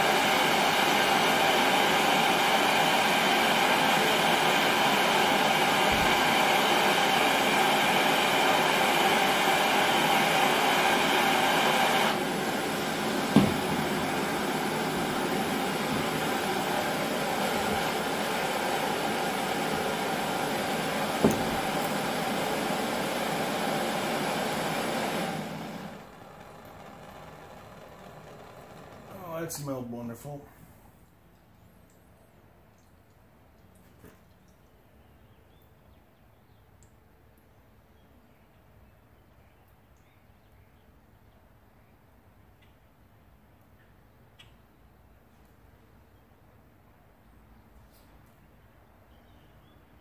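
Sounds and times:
gas torch flames hissing: 0:00.0 - 0:26.1
short knock: 0:13.3 - 0:13.7, 0:21.2 - 0:21.6.

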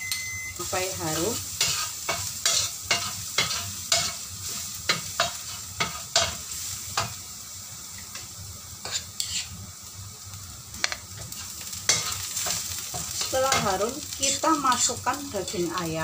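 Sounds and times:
garlic sizzling in hot oil: 0:00.0 - 0:16.0
metal spoon scraping wok: 0:01.1 - 0:07.2, 0:08.1 - 0:09.6, 0:11.2 - 0:15.8.

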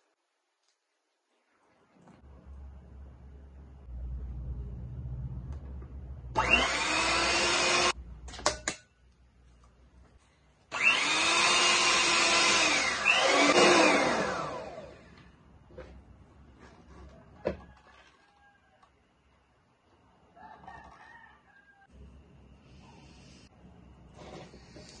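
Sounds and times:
electric hand mixer whine: 0:06.3 - 0:08.0, 0:10.7 - 0:15.2.

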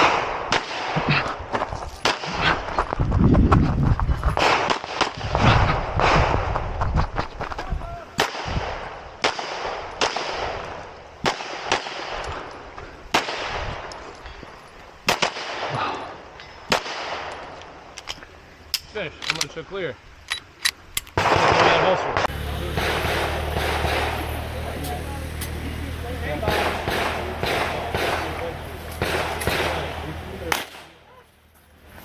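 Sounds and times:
pistol shots: 0:00.0 - 0:01.2, 0:08.2 - 0:12.5, 0:13.1 - 0:13.9, 0:15.0 - 0:15.8, 0:21.2 - 0:24.5, 0:26.4 - 0:31.0.

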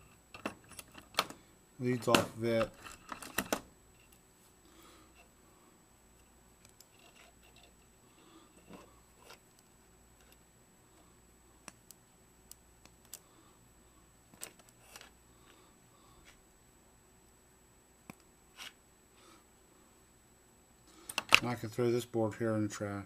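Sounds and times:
faint handling noise: 0:00.0 - 0:05.4, 0:06.1 - 0:12.0, 0:14.3 - 0:16.5.

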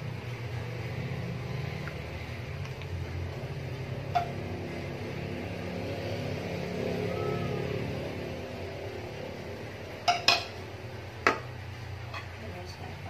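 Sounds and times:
low machine hum: 0:00.0 - 0:13.0
spoon clinking against wok: 0:10.0 - 0:10.6.

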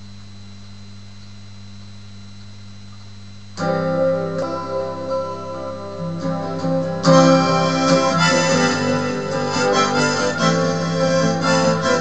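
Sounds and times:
low hum: 0:00.0 - 0:05.8
acoustic guitar chords: 0:03.5 - 0:12.0.

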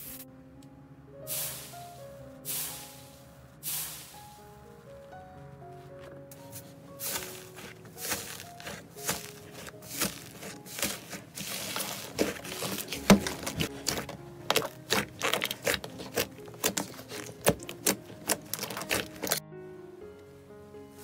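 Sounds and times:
slime crackling and popping: 0:07.0 - 0:19.4.

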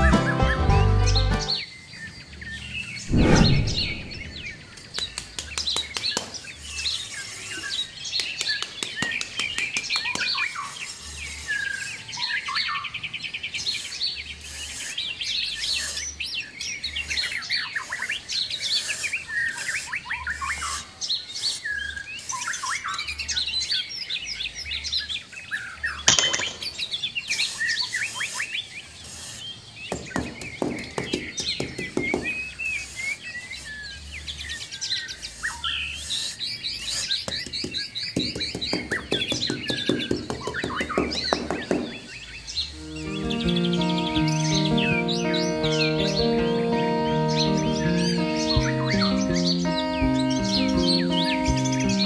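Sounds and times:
birds chirping and singing: 0:00.0 - 0:08.8, 0:09.8 - 0:52.0
low thump: 0:03.1 - 0:04.8.

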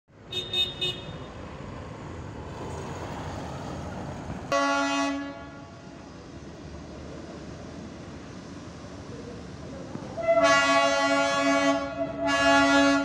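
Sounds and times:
horn toots: 0:00.3 - 0:01.3, 0:10.2 - 0:13.0
loud horn blast: 0:04.5 - 0:05.9, 0:10.2 - 0:13.0.

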